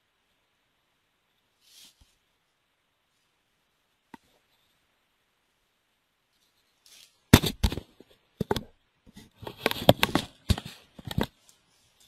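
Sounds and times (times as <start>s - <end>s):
microphone handling knocks and clicks: 7.4s - 11.3s.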